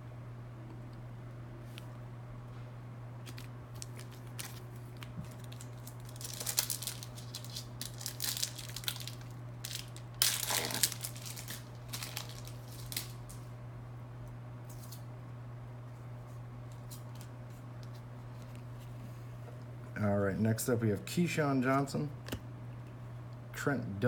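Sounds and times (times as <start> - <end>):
wrapper tearing and crinkling: 3.2 - 13.4.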